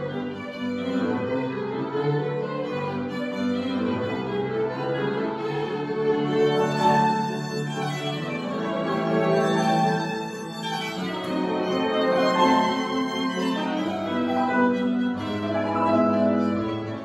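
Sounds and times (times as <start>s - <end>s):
violin melody: 0.0s - 17.0s
organ accompaniment: 2.8s - 17.0s.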